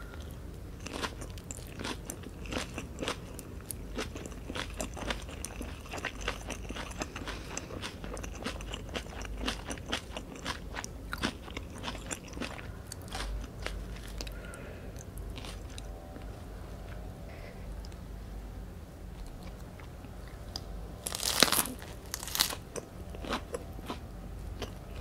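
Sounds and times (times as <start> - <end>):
chewing with crisp crunches: 0.0 - 17.1, 19.1 - 25.0.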